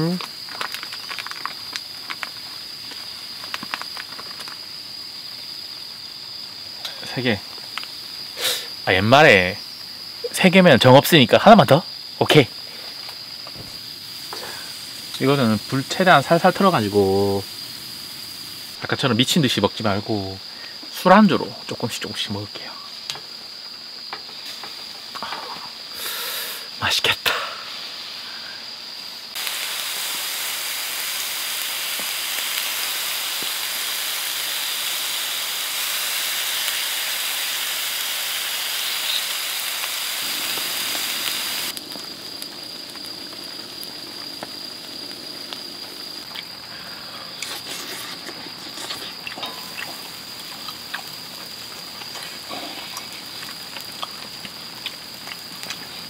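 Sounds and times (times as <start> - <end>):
pops and crackles: 0.0 - 4.7, 29.3 - 56.0
skewers sizzling on a grill: 0.0 - 56.0.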